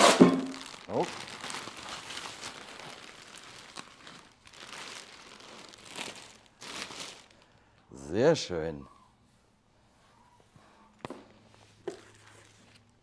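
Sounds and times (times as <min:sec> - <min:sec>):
packaging rustling and crinkling: 0:00.0 - 0:07.8.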